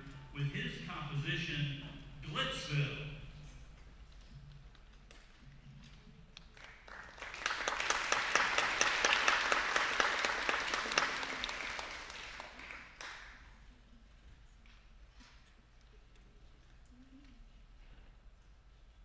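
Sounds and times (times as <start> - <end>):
audience applauding: 6.4 - 13.4.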